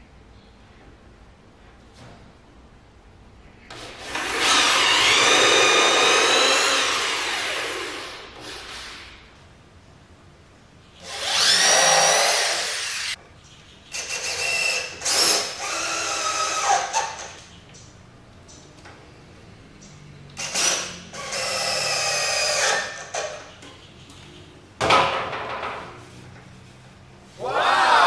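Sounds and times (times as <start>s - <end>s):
cordless drill boring into wood: 4.0s - 8.9s, 11.0s - 13.2s, 14.0s - 17.3s, 20.4s - 23.2s.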